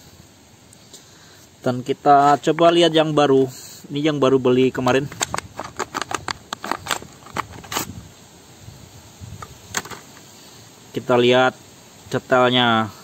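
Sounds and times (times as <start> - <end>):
plastic blister pack crackling: 4.8 - 7.9.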